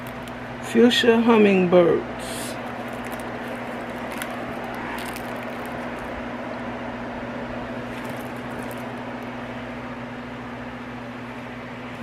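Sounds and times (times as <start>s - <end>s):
low machine hum: 0.0s - 12.0s
faint handling rustles: 2.4s - 6.1s, 7.8s - 9.3s.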